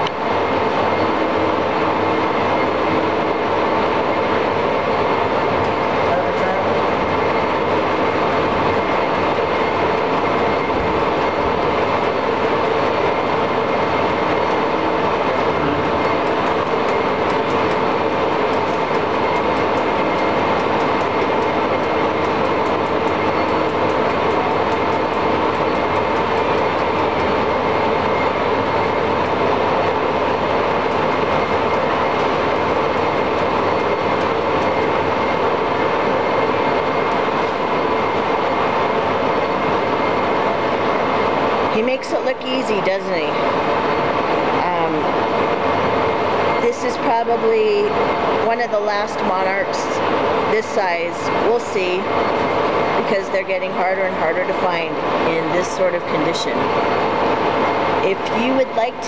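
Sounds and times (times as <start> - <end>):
faint steady whine: 0.0 - 59.0
lathe running with mechanical whir: 0.0 - 59.0.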